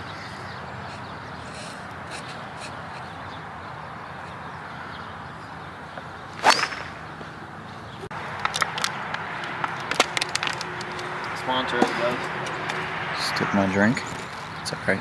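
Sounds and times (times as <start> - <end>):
club cracking on ball: 6.4 - 7.0
golf club swish: 6.4 - 7.0.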